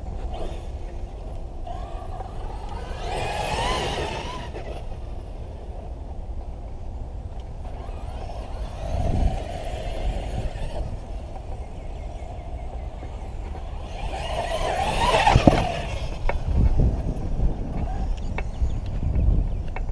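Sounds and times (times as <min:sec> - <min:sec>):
electric motor whine: 0:00.0 - 0:05.7, 0:07.5 - 0:18.9.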